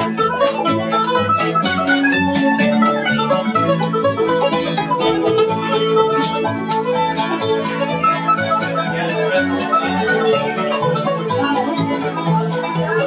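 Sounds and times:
guitar picking: 0.0s - 13.0s
mandolin picking rapid notes: 0.0s - 13.0s
upright bass: 0.0s - 13.0s.

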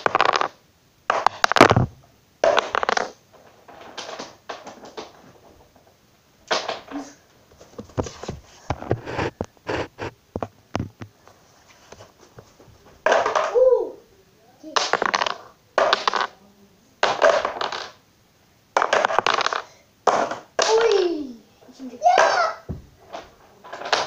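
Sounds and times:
blocks scraping: 0.0s - 5.8s, 6.5s - 13.6s, 18.8s - 21.0s, 22.1s - 24.0s
wooden blocks clattering on floor: 0.0s - 11.2s, 11.9s - 13.7s, 14.8s - 16.4s, 17.0s - 18.0s, 18.8s - 21.1s, 22.1s - 24.0s.

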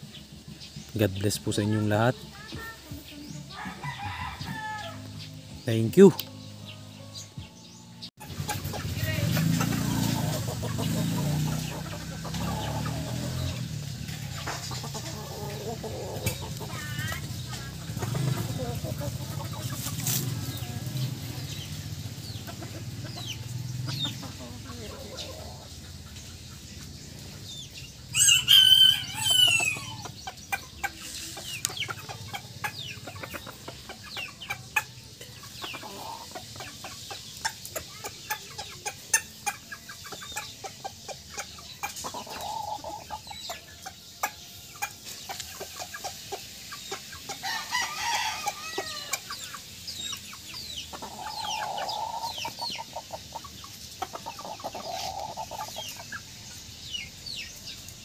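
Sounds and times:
chickens clucking: 0.0s - 58.0s
rooster crowing: 3.5s - 5.1s, 28.1s - 30.0s, 47.4s - 49.2s.

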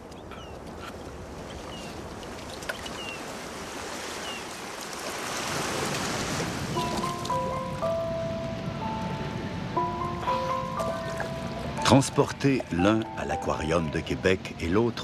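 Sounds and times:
small waves washing on sand: 0.6s - 7.5s.

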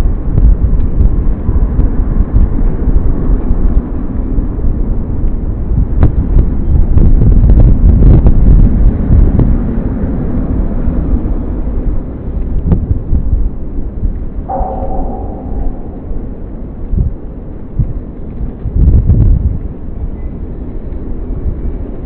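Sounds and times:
loud low rumbling: 14.4s - 19.5s.

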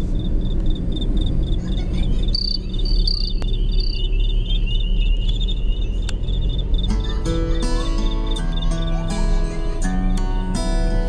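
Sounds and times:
insects chirping: 0.0s - 9.7s
car driving rumble: 0.0s - 11.0s
lower insect trill: 0.1s - 8.9s.

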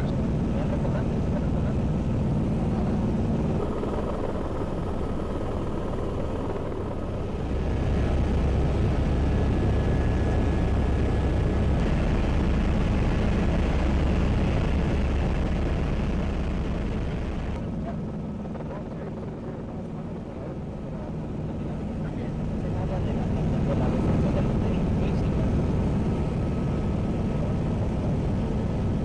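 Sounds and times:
low rumbling drone: 0.0s - 17.6s
faint steady hums: 0.0s - 29.0s.

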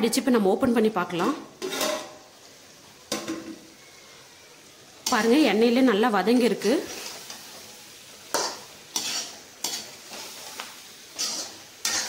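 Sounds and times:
vegetables sizzling in oil: 0.0s - 12.0s
metal spatula scraping pan: 1.1s - 2.2s, 8.3s - 12.0s.

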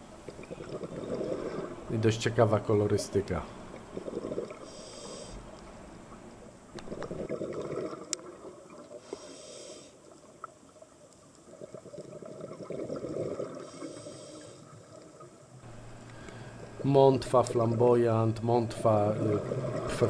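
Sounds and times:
exhaled air bubbling: 0.0s - 2.6s, 3.5s - 9.4s, 10.0s - 20.0s
regulator inhale hiss: 4.6s - 5.5s, 9.0s - 10.1s, 13.6s - 14.8s, 15.9s - 16.8s.

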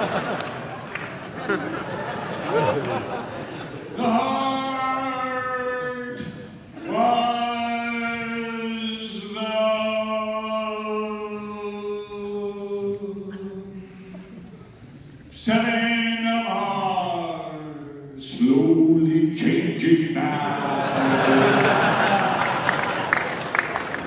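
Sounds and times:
man singing long notes: 4.0s - 14.0s.

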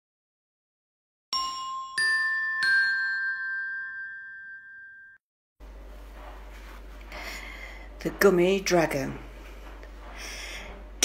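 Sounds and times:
three-note chime: 1.4s - 5.2s
faint room hum: 5.6s - 11.0s.

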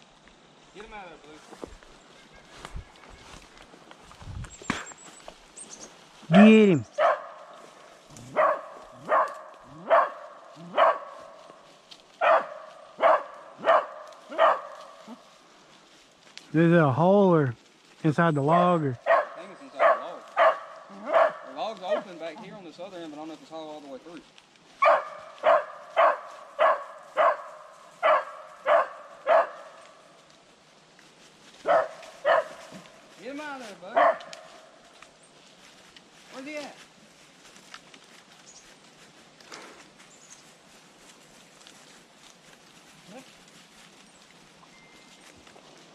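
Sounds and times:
dog barking: 6.3s - 7.6s, 8.3s - 11.4s, 12.2s - 15.2s, 18.5s - 22.2s, 24.8s - 29.9s, 31.6s - 32.8s, 33.9s - 34.7s.

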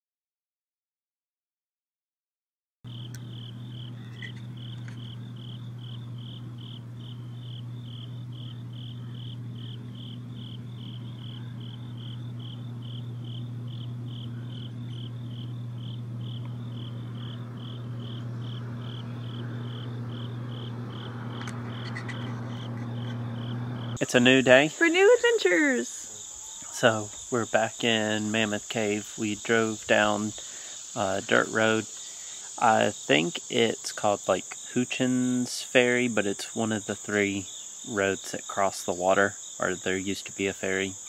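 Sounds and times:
low hum: 2.9s - 26.1s
crickets chirping: 2.9s - 41.0s.

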